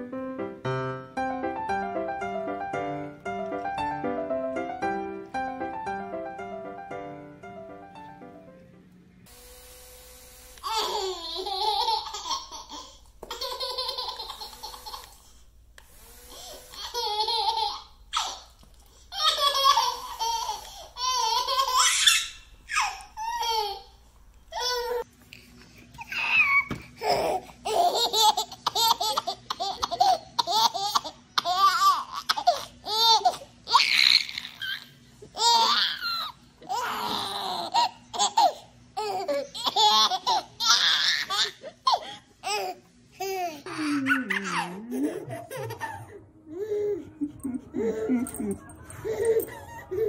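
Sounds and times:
baby laughing: 0:10.6 - 0:15.3, 0:16.4 - 0:25.0, 0:26.0 - 0:50.0.

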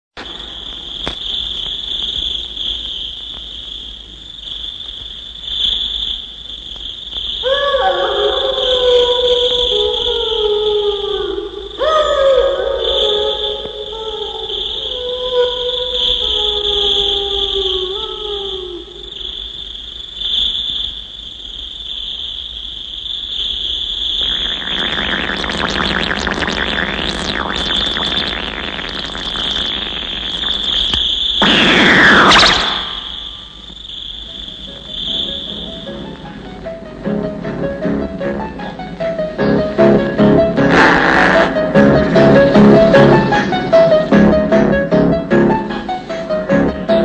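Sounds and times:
crickets chirring: 0:00.2 - 0:47.0
high-pitched electronic whine: 0:23.4 - 0:36.6, 0:39.4 - 0:45.9
low sustained pitched tone: 0:24.2 - 0:33.6.

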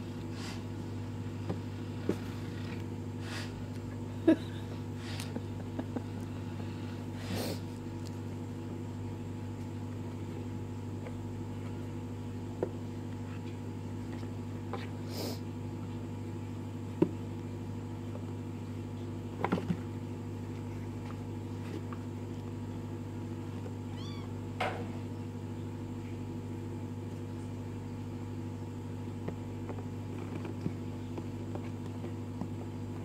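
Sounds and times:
steady low hum: 0:00.0 - 0:33.0
kittens meowing: 0:23.8 - 0:24.4.

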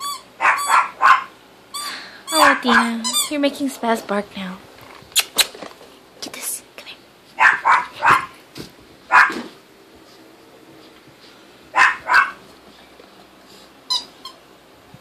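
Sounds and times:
dog barking: 0:00.4 - 0:01.4, 0:02.4 - 0:03.0, 0:07.4 - 0:08.4, 0:09.1 - 0:09.5, 0:11.8 - 0:12.4.

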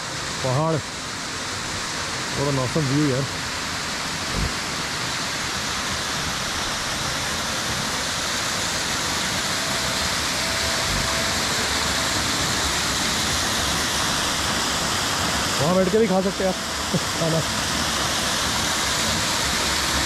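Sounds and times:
waterfall roaring: 0:00.0 - 0:20.0
short low thumps: 0:04.3 - 0:04.6.

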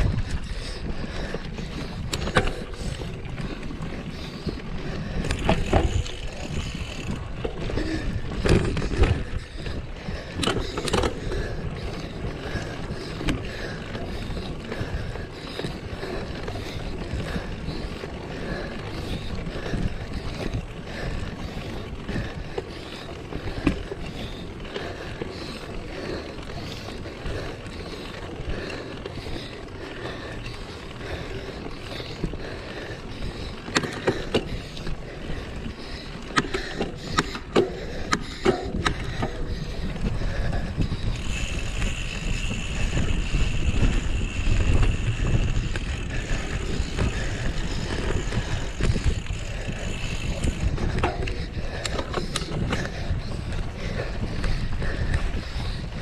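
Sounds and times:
wind on microphone: 0:00.0 - 0:12.3, 0:36.6 - 0:56.0
bike rattling and knocking: 0:00.0 - 0:56.0
tyres rumbling off-road: 0:00.0 - 0:56.0.

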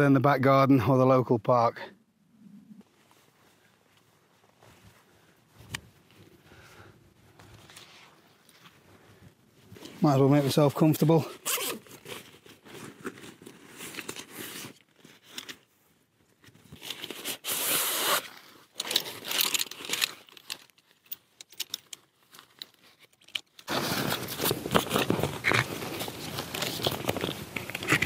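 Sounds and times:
tent poles clicking together: 0:16.7 - 0:28.0.

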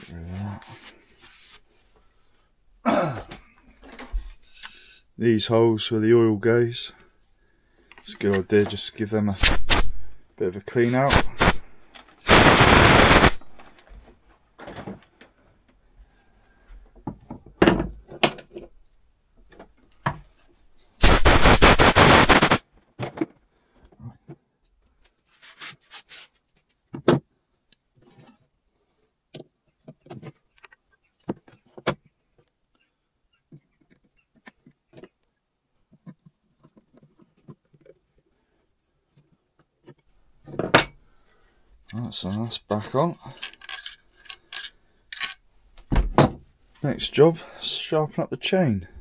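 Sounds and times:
air blow gun blasts: 0:09.4 - 0:10.2, 0:10.8 - 0:13.6, 0:21.0 - 0:22.6
metal tools clicking on workbench: 0:43.3 - 0:45.4.

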